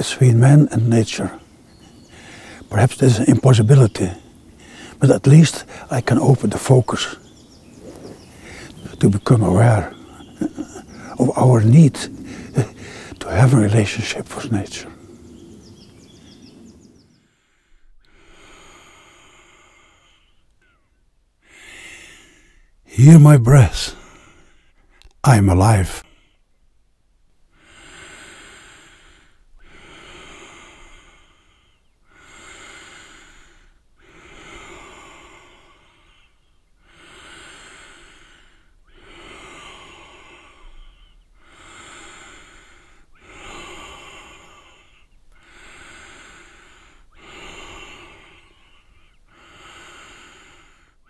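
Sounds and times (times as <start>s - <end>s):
man breathing deeply: 1.4s - 2.7s, 4.1s - 5.0s, 5.6s - 5.9s, 7.1s - 9.0s, 9.7s - 11.2s, 11.8s - 13.2s, 17.1s - 22.8s, 23.9s - 25.2s, 27.5s - 51.0s.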